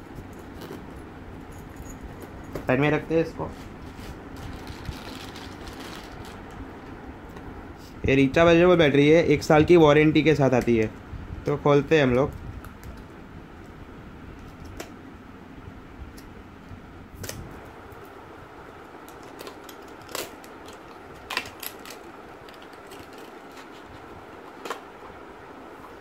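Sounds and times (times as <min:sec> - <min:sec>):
steady background hum: 0:00.0 - 0:26.0
plastic wrap crinkling: 0:03.8 - 0:06.6, 0:19.0 - 0:24.9.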